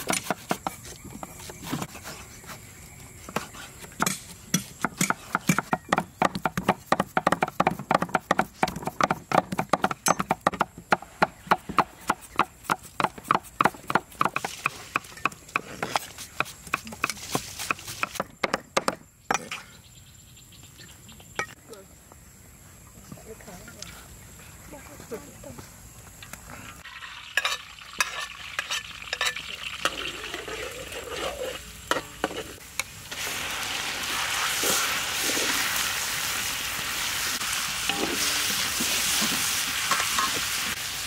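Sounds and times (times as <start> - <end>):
cleaver chopping on wooden board: 4.0 - 19.5.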